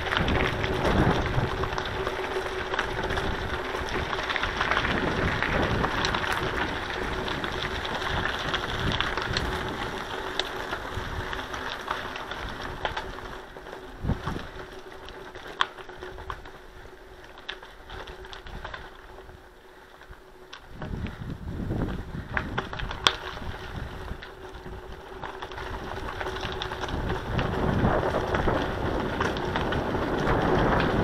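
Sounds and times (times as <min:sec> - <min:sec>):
bicycle tyres crunching on gravel: 0:00.0 - 0:31.0
bike clicks and rattles: 0:00.0 - 0:31.0.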